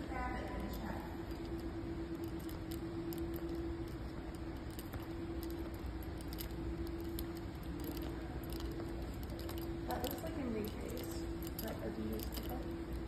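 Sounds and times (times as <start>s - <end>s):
steady room hum: 0.0s - 13.0s.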